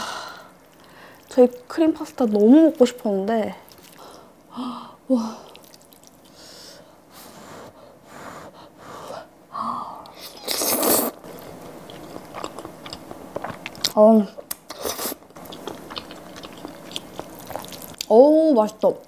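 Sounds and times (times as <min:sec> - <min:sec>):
wet chewing: 0:03.6 - 0:04.2, 0:05.4 - 0:06.4, 0:10.1 - 0:18.1
slurping noodles: 0:10.2 - 0:11.2.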